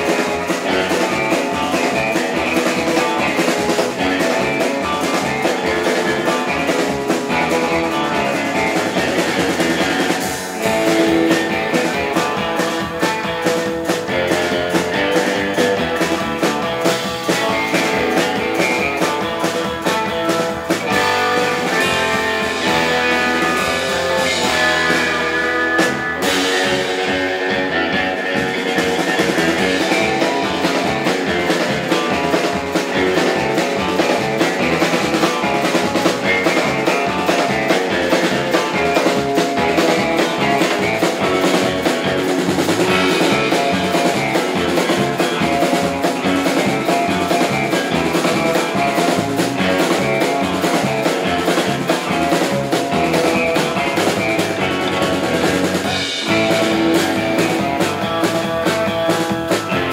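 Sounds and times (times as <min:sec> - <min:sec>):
bass guitar: 0:00.0 - 0:59.9
drum kit beat: 0:00.0 - 0:59.9
electric guitar: 0:00.0 - 0:59.9.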